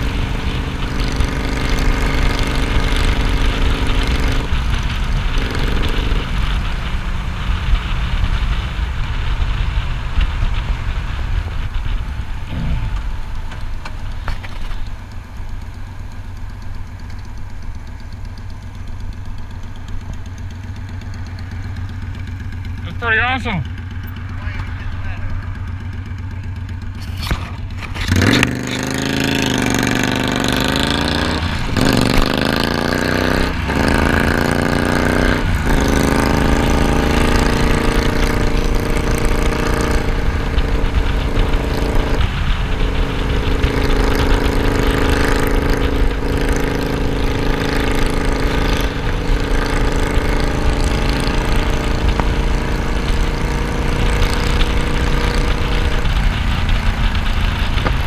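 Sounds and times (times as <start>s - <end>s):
wind noise on microphone: 0.0s - 15.0s
motorcycle engine accelerating: 0.0s - 58.0s.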